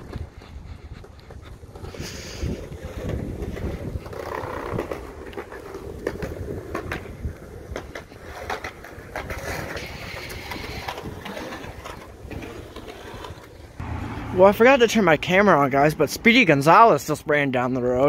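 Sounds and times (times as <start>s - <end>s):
footsteps on concrete: 0.0s - 7.1s
wind on microphone: 0.0s - 12.7s
road traffic: 11.7s - 18.0s.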